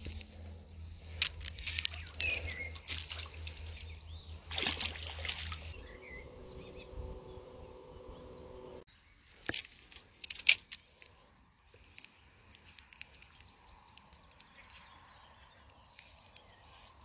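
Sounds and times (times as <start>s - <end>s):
handling and rustling noises: 0.0s - 3.8s
steady low rumble: 0.0s - 8.9s.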